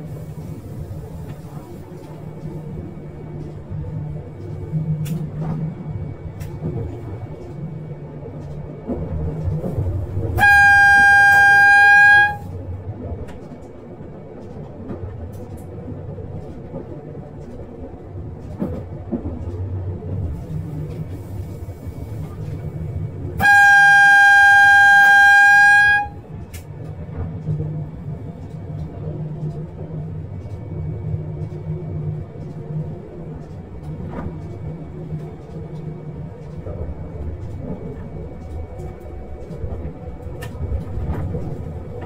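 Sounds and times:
train rumbling: 0.0 - 42.0
train horn blasts: 10.2 - 12.6, 23.4 - 26.3.

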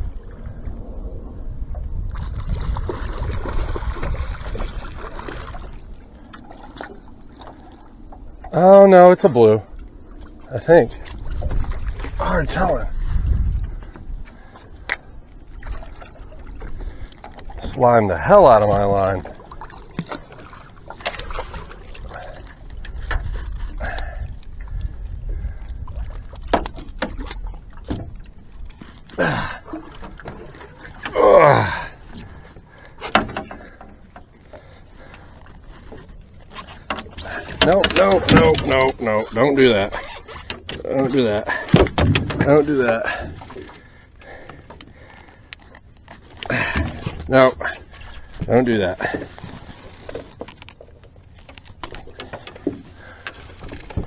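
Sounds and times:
low rumble: 0.0 - 8.5
water splashing and sloshing: 0.0 - 54.0
knocks against boat hull: 41.7 - 42.5.

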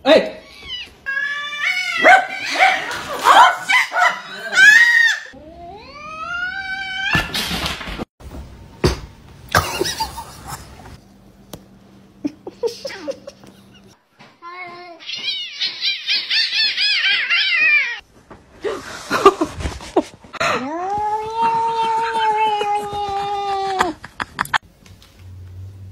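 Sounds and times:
cat cries: 0.6 - 2.6, 15.0 - 18.0.

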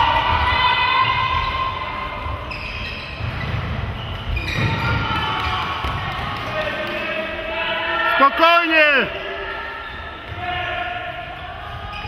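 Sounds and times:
footfalls on sports hall floor: 0.0 - 7.4.

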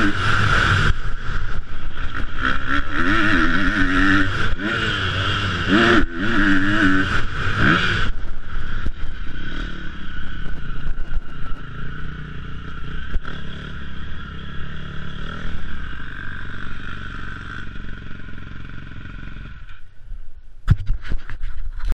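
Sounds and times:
motocross bike engine revving: 0.0 - 19.8
wind noise: 7.0 - 12.0, 20.0 - 22.0.

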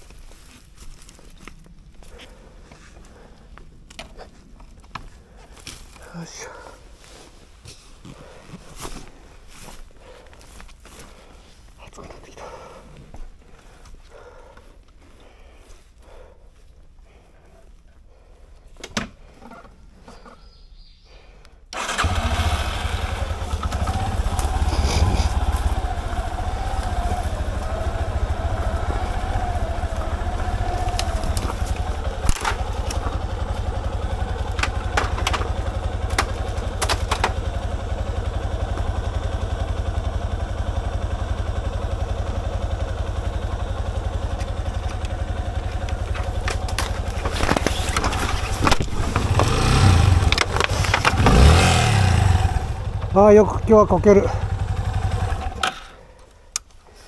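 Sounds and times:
motorcycle engine running: 21.8 - 56.2.

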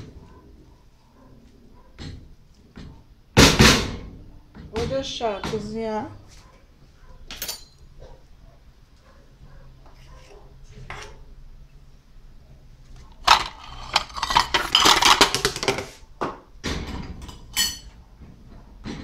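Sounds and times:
dishes clattering: 13.2 - 15.9, 16.8 - 18.0.

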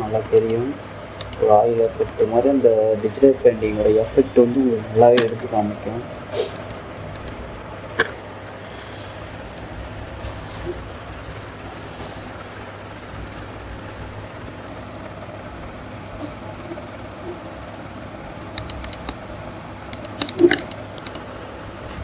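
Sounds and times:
low background hum: 0.0 - 22.0
sharp clicks: 0.3 - 0.6, 1.2 - 1.4, 6.5 - 7.4, 18.2 - 19.2, 19.9 - 21.3
soft hissing swishes: 10.1 - 14.2.

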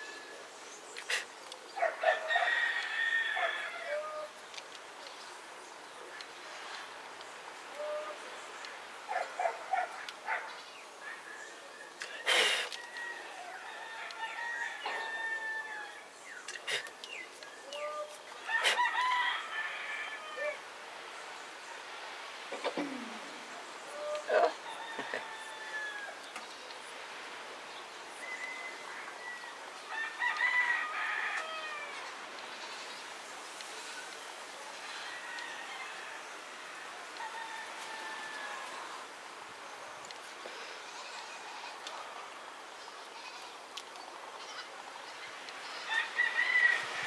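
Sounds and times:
rooster crowing: 1.8 - 4.3, 12.8 - 16.0, 17.8 - 20.6, 23.9 - 26.2, 28.2 - 32.1, 34.8 - 39.0, 45.9 - 47.0.

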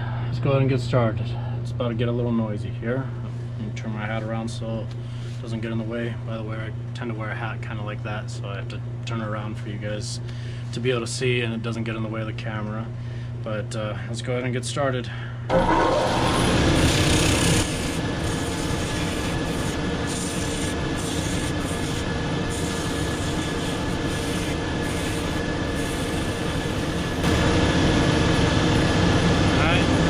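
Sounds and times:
sanding belt grinding shoe sole: 16.8 - 27.1.

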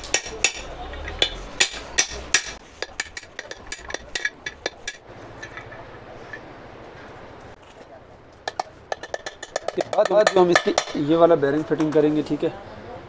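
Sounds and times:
hammer tapping metal rod: 0.0 - 5.6, 8.5 - 11.1.

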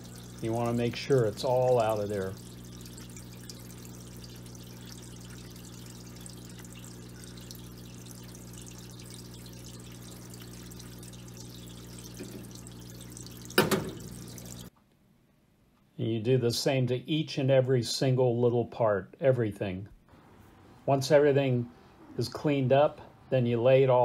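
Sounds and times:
pump electric hum: 0.0 - 14.7
solvent splashing over part: 0.0 - 14.7.

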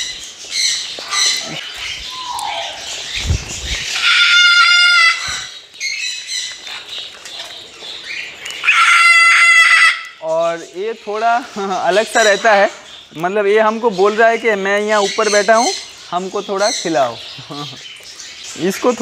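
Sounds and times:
parrots chattering: 0.0 - 13.2
parrot screeching: 1.0 - 3.0, 3.9 - 5.6, 8.6 - 10.2.

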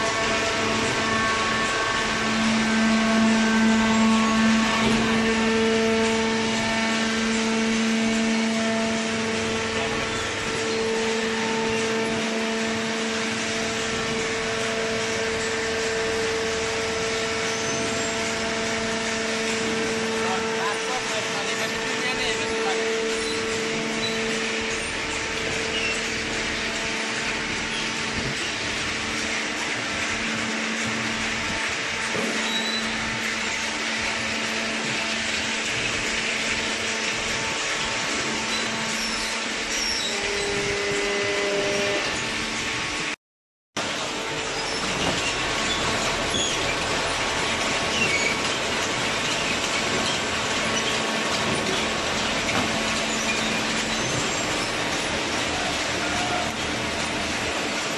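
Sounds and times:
baler motor and pump humming: 0.0 - 43.2, 43.8 - 57.9
industrial machinery whirring: 0.0 - 43.2, 43.8 - 57.9.

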